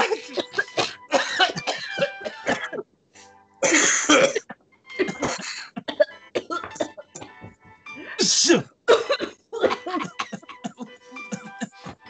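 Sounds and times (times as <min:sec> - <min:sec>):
man coughing: 0:00.0 - 0:02.8, 0:03.6 - 0:12.0
garbled voices: 0:08.0 - 0:08.6.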